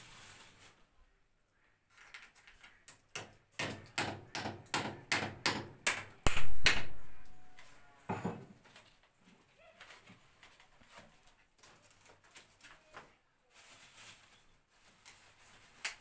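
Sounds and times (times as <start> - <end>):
hammer driving nails into brick: 3.1 - 6.9.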